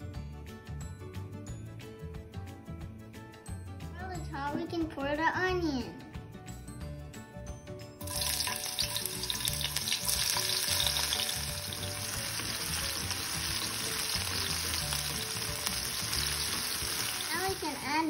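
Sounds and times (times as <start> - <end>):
onion sizzling in hot oil: 8.0 - 18.0
spatula stirring in wok: 8.1 - 17.3.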